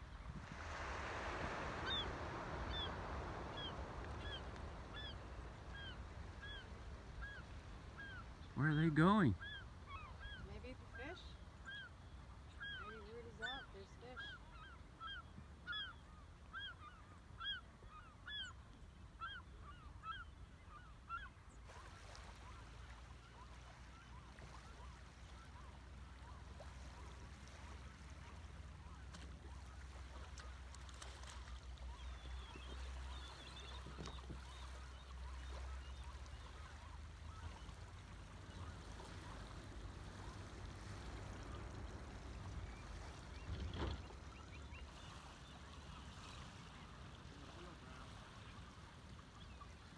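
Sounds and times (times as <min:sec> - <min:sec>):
waterfowl flock calling: 0:00.6 - 0:12.0.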